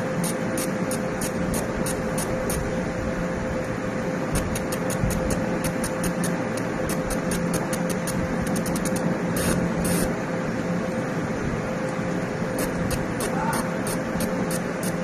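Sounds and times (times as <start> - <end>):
fan hum: 0.0 - 15.0
high-pitched hissing pulses: 12.6 - 15.0.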